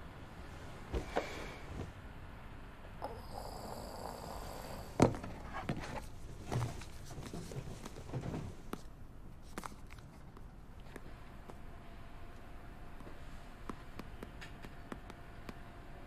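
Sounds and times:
bedding rustling: 0.3 - 2.2, 5.0 - 12.0.

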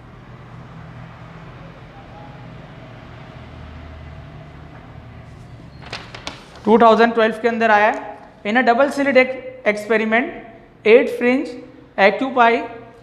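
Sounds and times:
paper handling clicks: 5.8 - 6.7.

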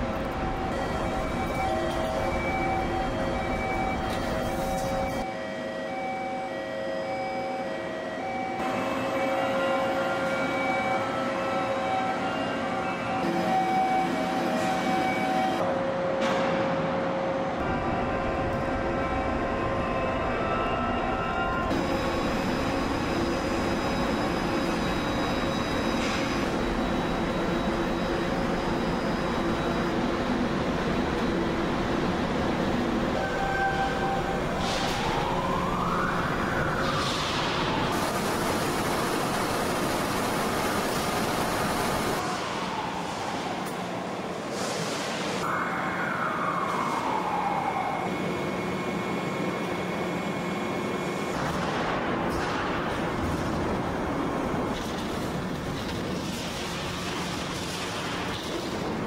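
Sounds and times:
industrial machinery din: 21.6 - 45.4, 48.1 - 59.0.

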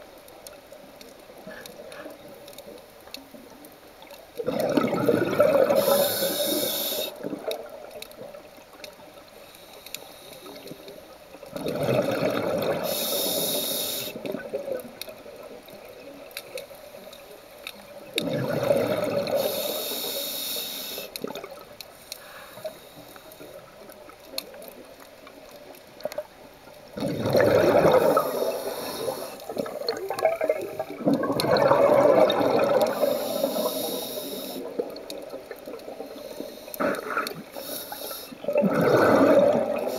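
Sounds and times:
diver exhaling bubbles underwater: 4.4 - 7.7, 11.5 - 12.9, 18.2 - 19.6, 27.0 - 34.0, 38.4 - 39.9.

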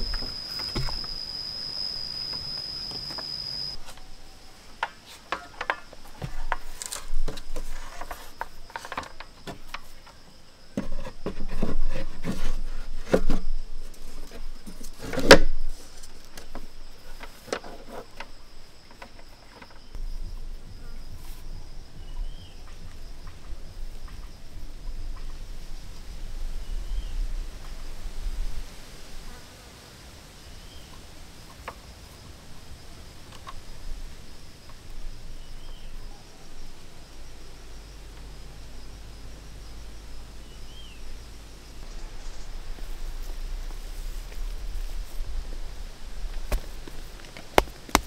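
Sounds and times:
high-pitched whine: 0.0 - 6.6.

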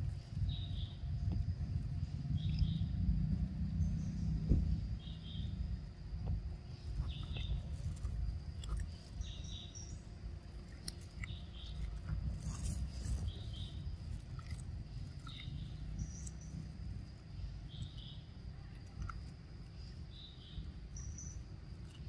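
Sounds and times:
high insect drone: 0.0 - 22.0
low rumble: 0.0 - 22.0.

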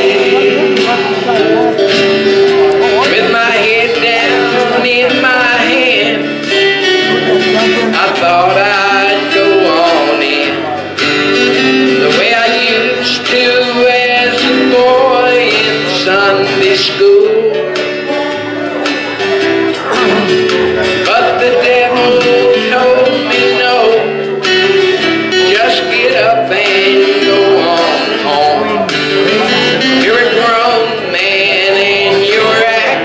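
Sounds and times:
gospel group singing: 0.0 - 1.8, 2.7 - 6.4, 7.1 - 10.8, 25.4 - 33.0
guitar accompaniment: 0.0 - 33.0.

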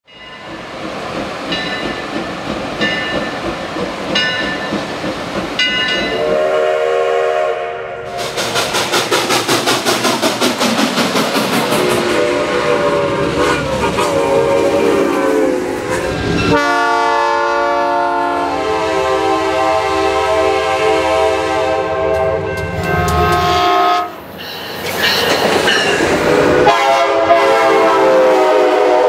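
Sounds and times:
locomotive bell ringing: 0.1 - 0.6, 1.5 - 2.1, 2.8 - 3.4, 4.1 - 4.8, 5.6 - 6.4, 16.3 - 16.7, 22.4 - 23.7, 24.4 - 26.1
steam whistle: 6.1 - 8.4, 11.8 - 24.2, 26.3 - 29.0
steam exhaust chuffing: 6.2 - 17.0.

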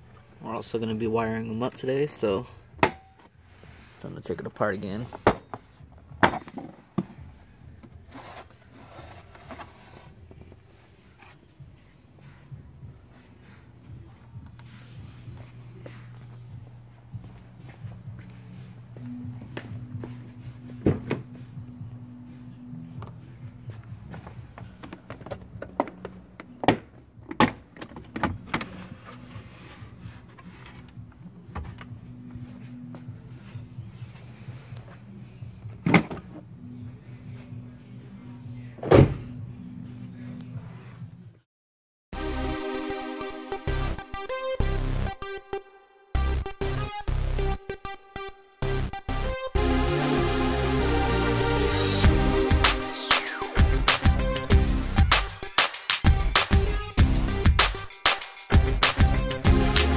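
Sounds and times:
plastic scraping and rubbing: 8.0 - 10.6.

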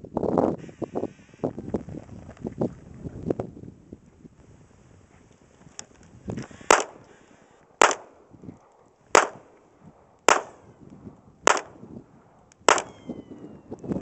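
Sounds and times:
gunshots: 6.7 - 7.0, 7.8 - 8.2, 9.1 - 9.5, 10.3 - 10.6, 11.4 - 11.8, 12.7 - 13.0.

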